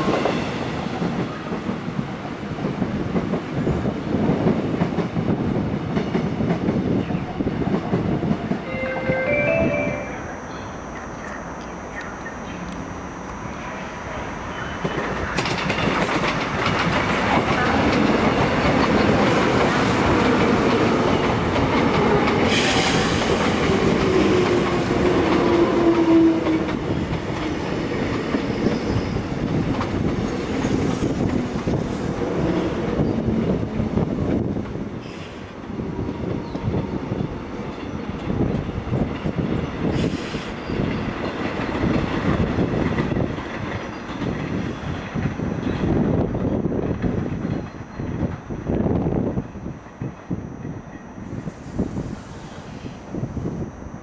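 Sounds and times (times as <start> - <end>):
train rumbling past: 0.0 - 54.0
train whine gliding down: 0.0 - 54.0
wheels clacking over rail joints: 14.8 - 22.6.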